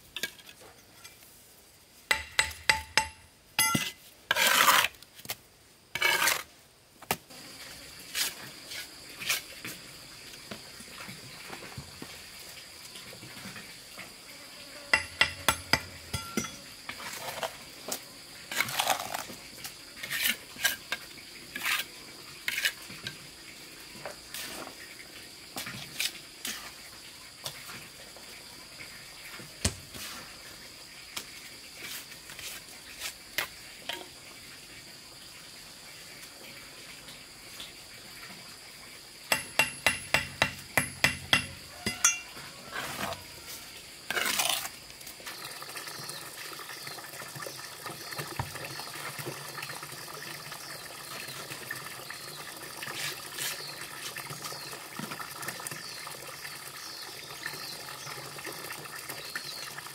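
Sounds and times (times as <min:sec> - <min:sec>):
trowel scraping concrete blocks: 0:02.1 - 0:05.4, 0:06.0 - 0:06.5, 0:14.8 - 0:17.7, 0:18.5 - 0:19.4, 0:20.0 - 0:23.2, 0:39.3 - 0:43.5, 0:44.1 - 0:44.8
high drone of insects: 0:07.3 - 0:55.1, 0:55.8 - 0:58.1
sharp trowel taps: 0:39.3 - 0:42.2.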